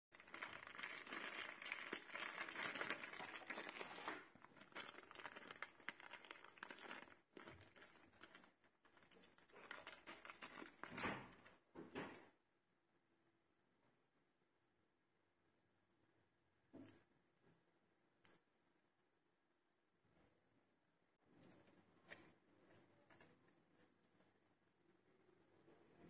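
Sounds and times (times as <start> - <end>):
plastic bag crinkling: 0.1 - 11.6.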